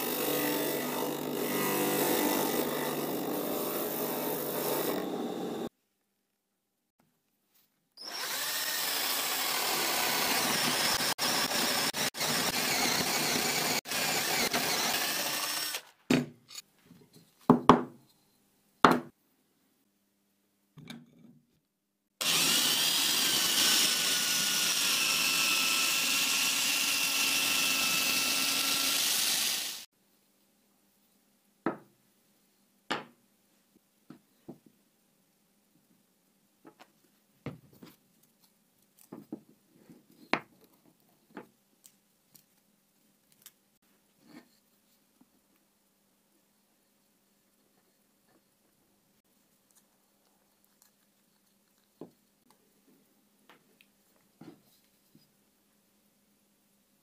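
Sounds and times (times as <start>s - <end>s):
power drill boring into wood: 0.0s - 5.7s, 8.0s - 15.9s, 22.2s - 29.9s.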